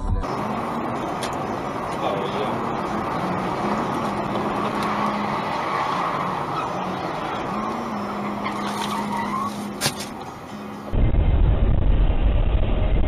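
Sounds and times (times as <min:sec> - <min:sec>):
car engine hum: 0:00.0 - 0:11.0
car road noise: 0:00.0 - 0:13.0.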